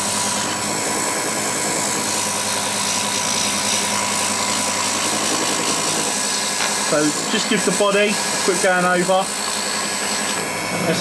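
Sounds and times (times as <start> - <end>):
lathe motor humming: 0.0 - 11.0.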